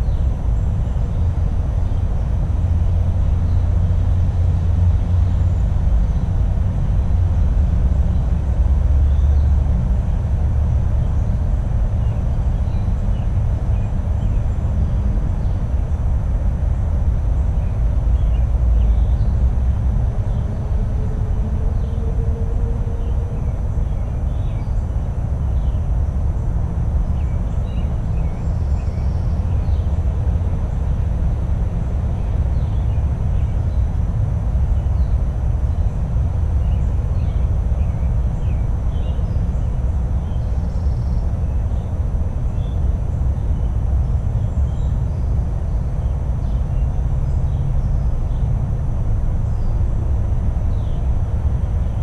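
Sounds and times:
loud low rumble: 0.0s - 52.0s.

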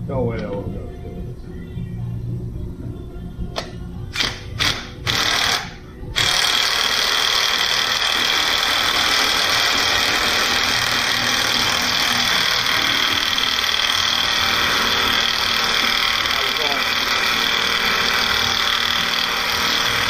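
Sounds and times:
cordless power tool running: 4.2s - 20.0s.

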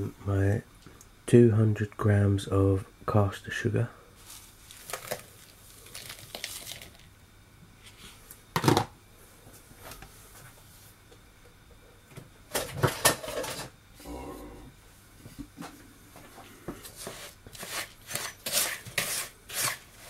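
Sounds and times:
sugar pouring soft hiss: 4.2s - 7.1s.

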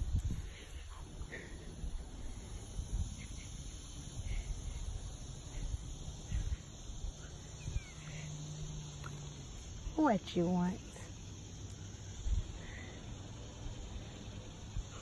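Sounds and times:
wind rumble on microphone: 0.0s - 7.9s, 12.2s - 12.6s
insects chirping: 0.0s - 15.0s.

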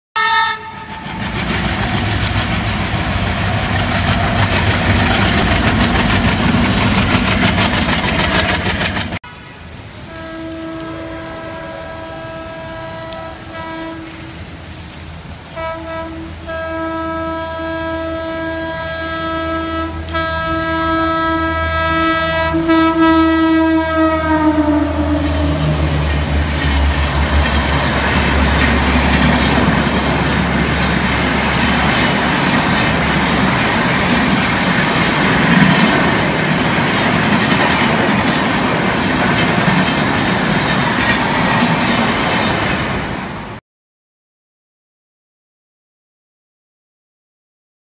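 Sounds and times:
electric locomotive horn: 0.2s - 1.0s, 9.2s - 14.5s, 15.5s - 26.3s
train wheels rumbling on rails: 0.2s - 9.2s, 10.0s - 43.6s.

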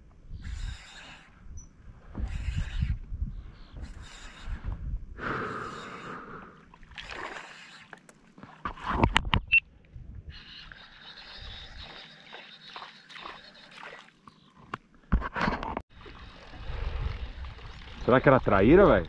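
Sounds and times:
shallow water splashing: 5.9s - 9.1s, 11.7s - 15.0s, 15.9s - 19.0s.

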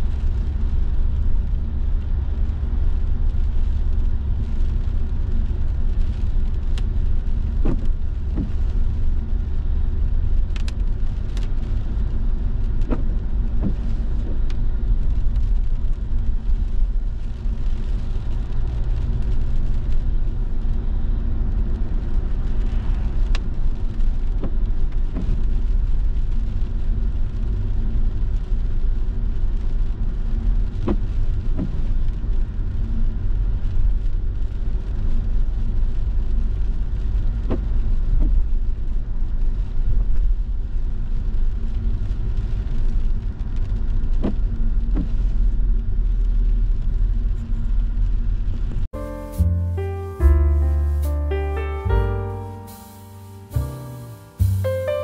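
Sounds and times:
tyre and road noise: 0.0s - 52.5s
windscreen wiper strokes: 0.1s - 27.7s, 28.4s - 35.1s, 36.0s - 39.6s, 42.1s - 46.5s.

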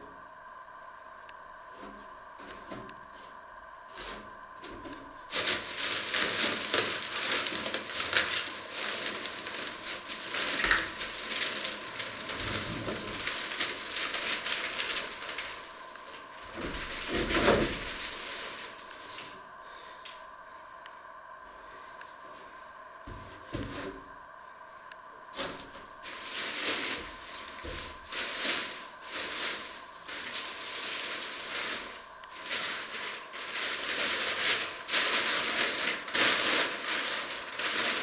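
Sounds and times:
plastic wrap crinkling: 5.2s - 19.3s, 25.4s - 38.0s.

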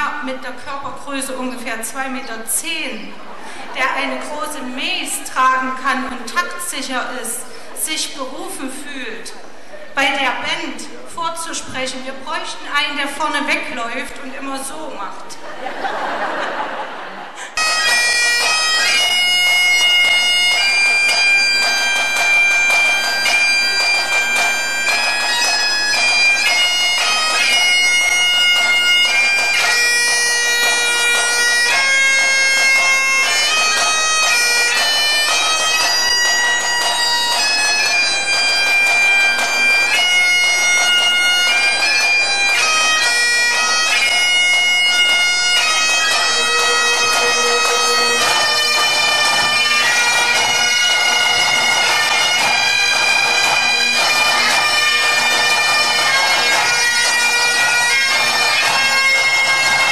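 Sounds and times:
bagpipes playing melody: 17.4s - 59.9s.

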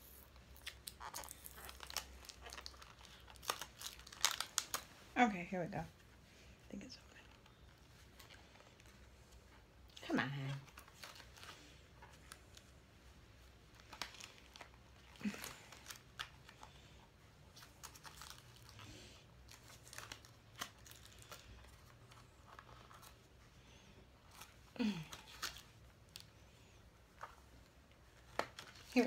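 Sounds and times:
package being torn open: 0.0s - 4.9s, 13.8s - 16.6s, 17.6s - 23.1s.

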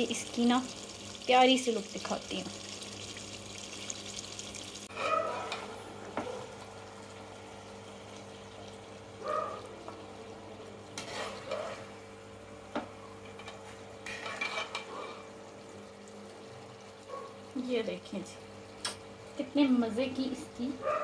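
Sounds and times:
metal spoon scraping pot: 11.0s - 11.8s.

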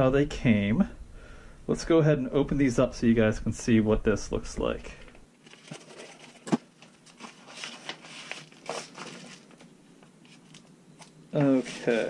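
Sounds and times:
paper packaging rustling: 5.4s - 12.0s.

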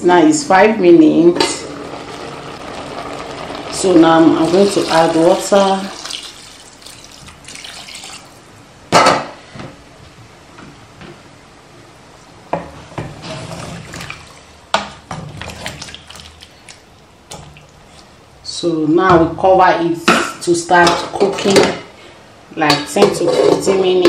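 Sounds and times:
water pouring into a pot: 1.6s - 8.4s.

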